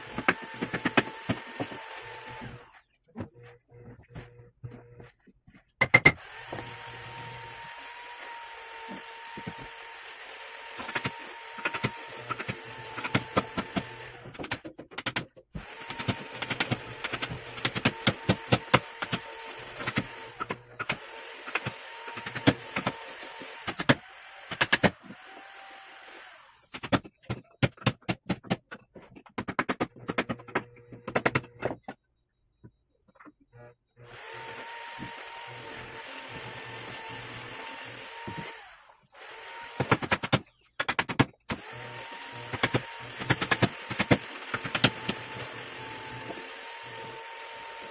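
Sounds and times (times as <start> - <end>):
hammer striking wood chisel: 10.8 - 23.0.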